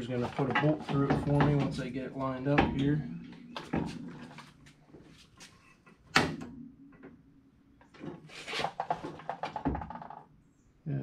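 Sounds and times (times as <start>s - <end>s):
scraping rustle: 8.2s - 9.3s.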